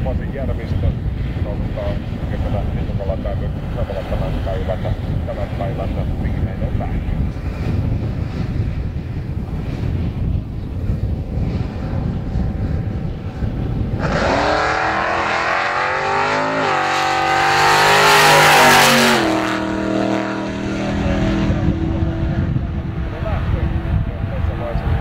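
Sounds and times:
wind rumble on microphone: 0.0s - 25.0s
drag racing car accelerating: 11.4s - 25.0s.

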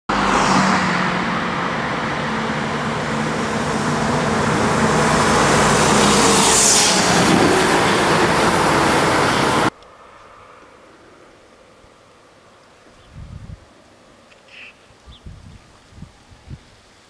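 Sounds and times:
motor vehicle driving past: 0.1s - 11.5s.

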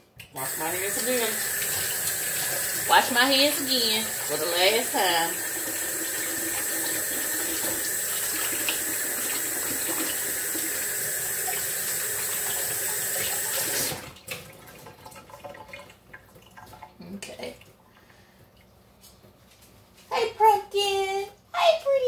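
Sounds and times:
tap running: 0.2s - 14.4s.

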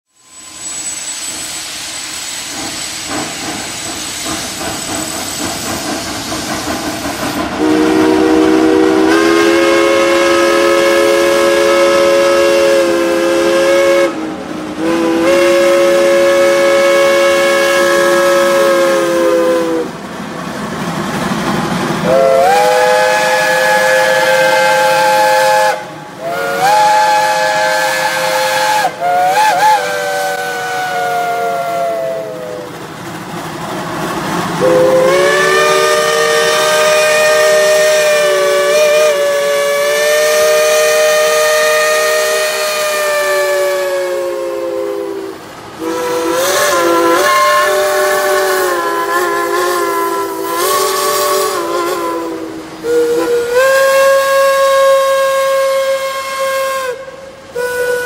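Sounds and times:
higher-pitched steam whistle: 0.0s - 20.0s, 22.0s - 32.8s, 34.6s - 58.0s
steam locomotives hissing: 0.0s - 58.0s
steam whistle blasts: 0.1s - 3.6s, 7.6s - 20.0s, 22.0s - 32.7s, 34.6s - 58.0s.

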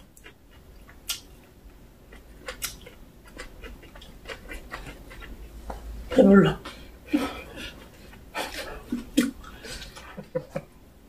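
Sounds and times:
chewing with wet mouth clicks: 0.0s - 5.9s.

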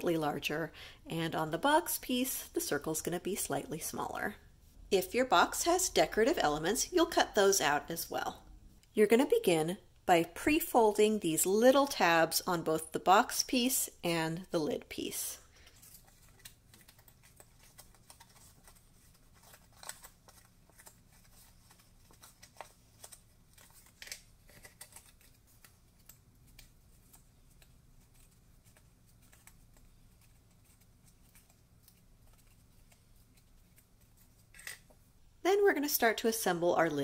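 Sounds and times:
cardstock clicks and rustles: 15.6s - 34.9s.

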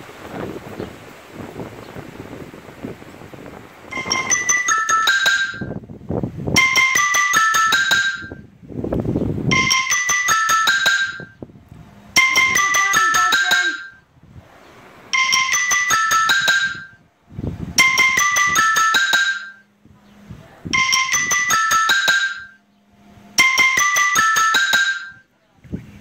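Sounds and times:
marimba-like phone ringtone: 3.9s - 5.8s, 6.6s - 8.5s, 9.5s - 11.4s, 12.2s - 14.0s, 15.1s - 17.0s, 17.8s - 19.7s, 20.7s - 22.6s, 23.4s - 25.3s.

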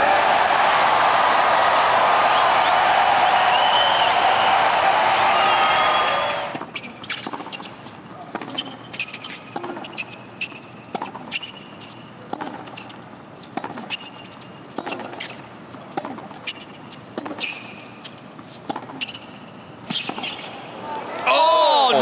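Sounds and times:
crowd applause: 0.0s - 6.5s
shoes squeaking on court: 5.8s - 20.8s
tennis ball bouncing on court: 6.5s - 20.5s.

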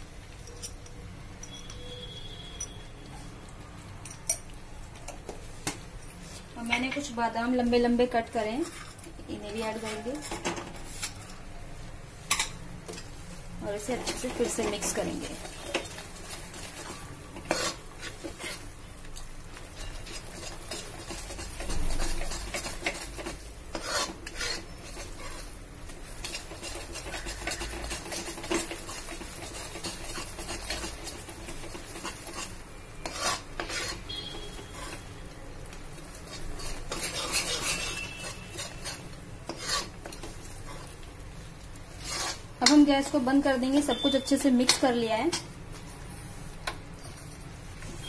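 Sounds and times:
metal spatula scraping pan: 8.4s - 11.2s, 13.8s - 18.7s, 19.7s - 35.2s, 36.2s - 41.0s, 41.9s - 44.9s.

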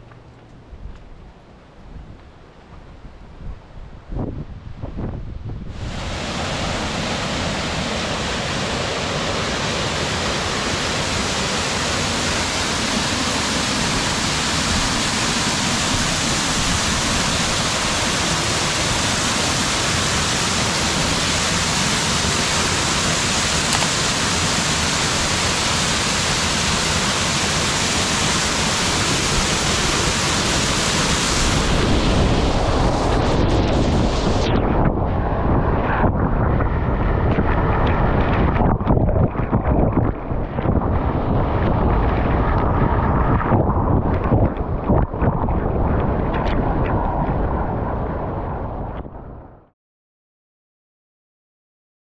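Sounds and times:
waterfall rushing: 5.9s - 32.3s
low rumble: 29.1s - 49.7s.

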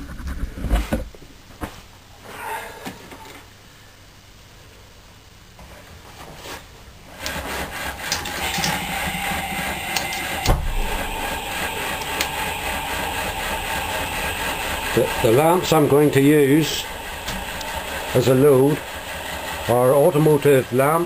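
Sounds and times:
stirling engine clattering: 7.2s - 21.0s
sharp knock: 10.4s - 10.8s.

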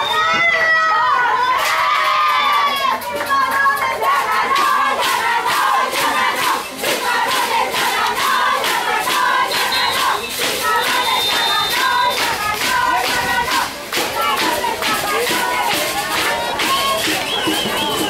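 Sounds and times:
voices singing: 0.0s - 18.0s
steady beat: 2.8s - 18.0s.

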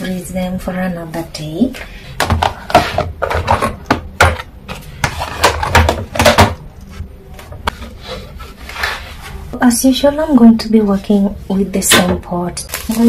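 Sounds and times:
containers and lids knocking: 2.2s - 6.6s.

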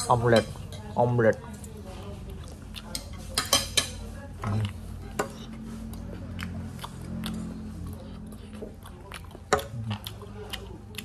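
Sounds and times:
person chewing food: 2.0s - 3.4s, 4.4s - 11.0s.

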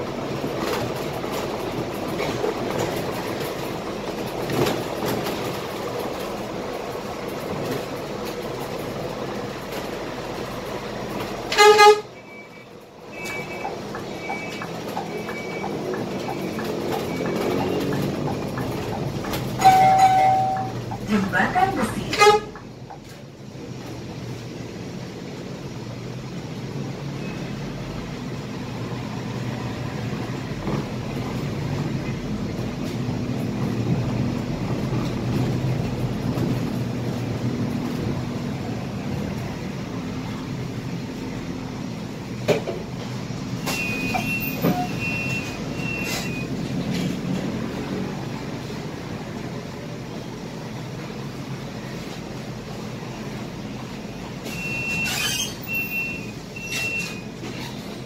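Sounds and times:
bus engine and road rumble: 0.0s - 58.0s
high beeps: 12.2s - 17.7s.

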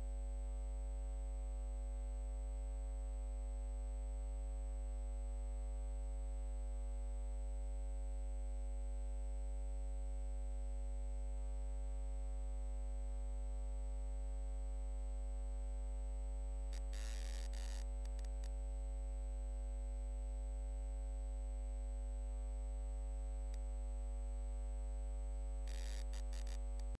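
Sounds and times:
electrical mains hum: 15.1s - 27.0s
crackling static bursts: 16.8s - 18.5s, 25.6s - 27.0s.

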